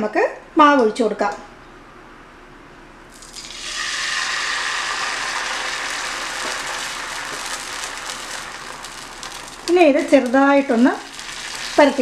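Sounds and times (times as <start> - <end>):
batter sizzling in pan: 3.1 - 12.0.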